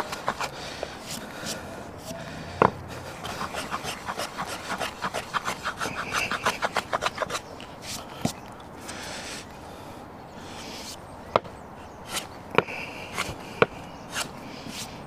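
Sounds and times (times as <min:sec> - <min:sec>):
hand plane scraping wood: 0:00.0 - 0:08.1, 0:12.1 - 0:15.0.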